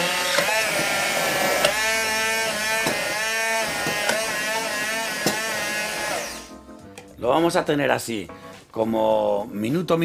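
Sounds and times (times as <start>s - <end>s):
hand blender whining: 0.0s - 6.5s.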